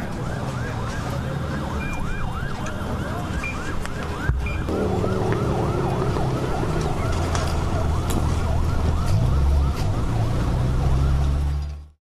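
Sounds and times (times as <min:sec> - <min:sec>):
emergency sirens yelping: 0:00.0 - 0:11.9
steady low rumble: 0:04.3 - 0:09.3.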